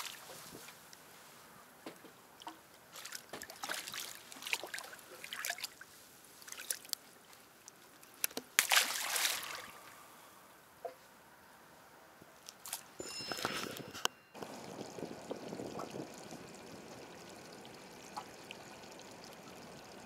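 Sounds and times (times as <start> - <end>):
fish splashing water: 2.9 - 5.8, 8.6 - 10.0.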